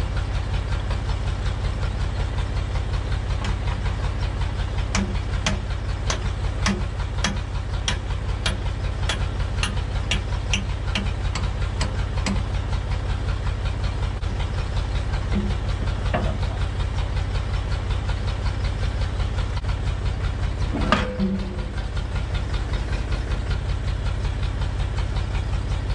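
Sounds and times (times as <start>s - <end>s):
backhoe engine running: 0.0s - 25.9s
metallic clanks: 15.2s - 16.6s, 20.6s - 22.0s.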